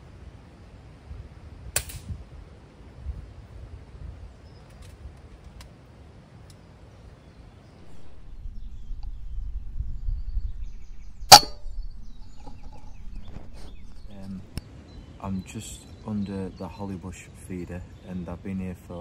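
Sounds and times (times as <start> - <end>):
low rumble: 7.8 - 14.6
air rifle shot crack: 7.9 - 14.6.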